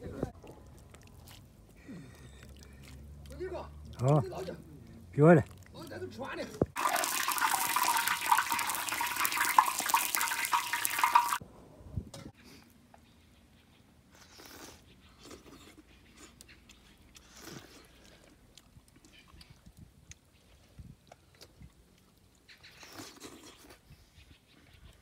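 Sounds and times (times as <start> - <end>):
food sizzling in a wok: 6.8 - 11.4.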